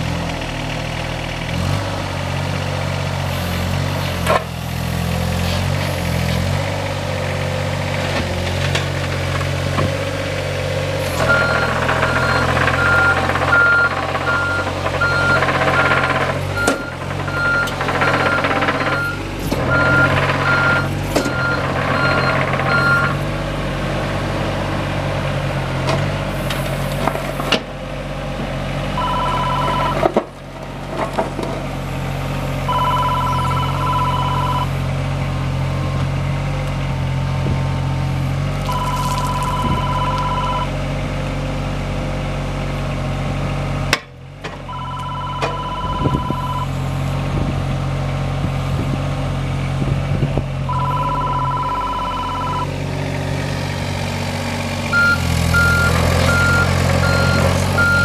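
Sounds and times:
excavator diesel engine running: 0.0 - 58.0
travel alarm beeping: 29.0 - 30.0, 32.7 - 34.7, 38.7 - 40.7, 44.7 - 46.7, 50.7 - 52.7, 55.0 - 58.0.

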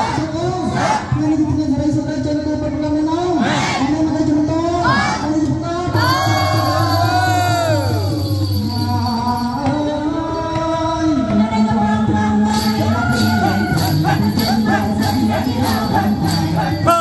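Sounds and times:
jingling percussion: 5.9 - 17.0
gliding melody line: 6.0 - 9.8
person singing: 6.0 - 17.0.

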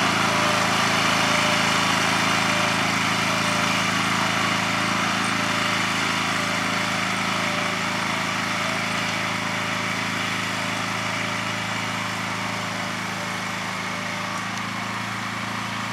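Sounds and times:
small gasoline engine running: 0.0 - 15.9.

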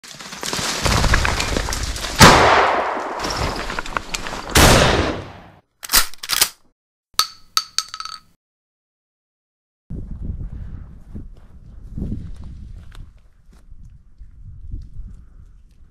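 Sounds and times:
gunshot-like blasts: 2.2 - 3.2
sharp metallic clicks: 7.2 - 8.3.

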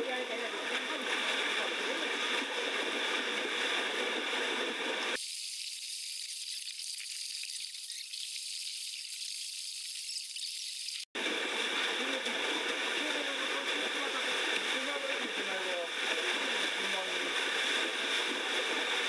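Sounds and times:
water sloshing and churning: 0.1 - 5.2, 11.1 - 19.0.

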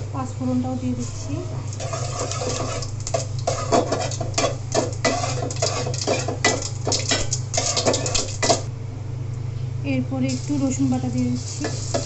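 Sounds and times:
spices crackling in hot oil: 1.1 - 8.7, 10.3 - 12.0
metal spatula scraping pot: 1.7 - 8.7.

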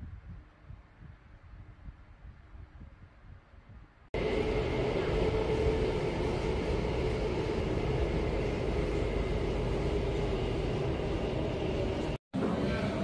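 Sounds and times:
metro train rumble: 4.2 - 13.0.

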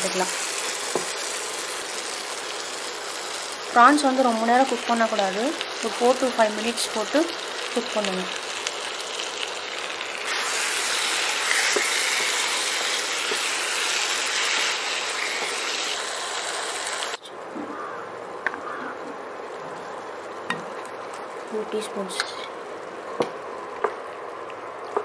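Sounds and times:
prawns sizzling in a pan: 0.0 - 17.2.

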